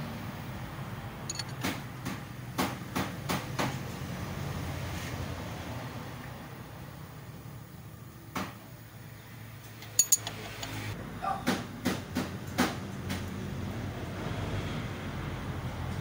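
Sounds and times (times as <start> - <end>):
metal tools clinking and knocking: 1.3 - 1.6, 9.8 - 10.8.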